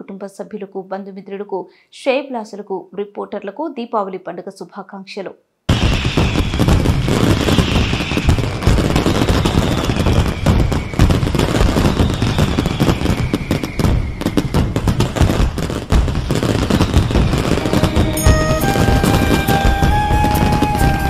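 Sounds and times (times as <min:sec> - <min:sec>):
firecrackers popping: 0:05.7 - 0:21.0
sustained musical notes: 0:17.4 - 0:21.0.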